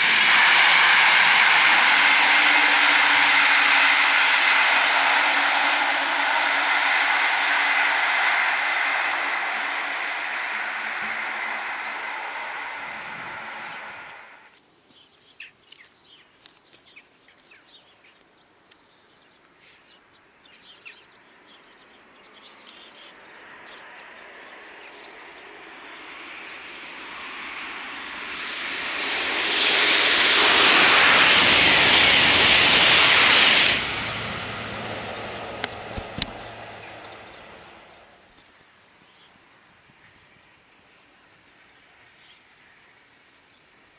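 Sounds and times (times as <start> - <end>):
high-speed train rushing past: 0.0 - 14.5, 22.5 - 38.3.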